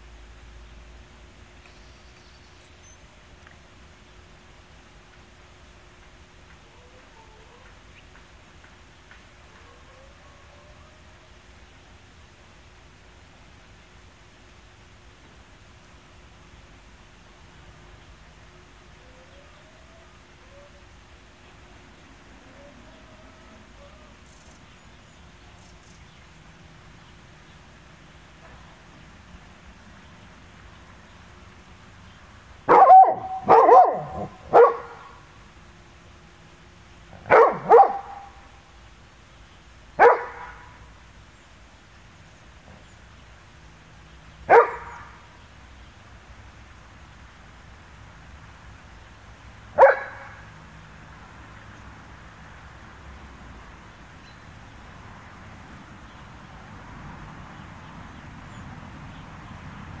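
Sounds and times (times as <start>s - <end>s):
low rumble and hiss: 0.0s - 60.0s
faint bird chirps: 1.6s - 3.2s
dog barking: 32.7s - 35.2s, 37.2s - 38.4s, 40.0s - 40.8s, 44.5s - 45.2s, 49.8s - 50.4s.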